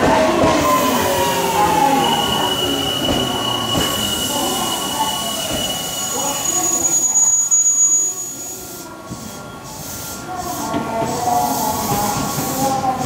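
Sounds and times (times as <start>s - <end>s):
train wheels squealing: 0.7s - 10.7s.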